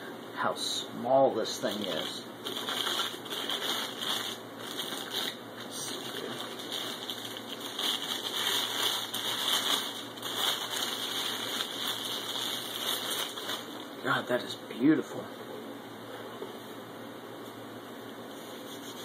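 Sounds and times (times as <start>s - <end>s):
plastic bag crinkling: 1.6s - 13.9s.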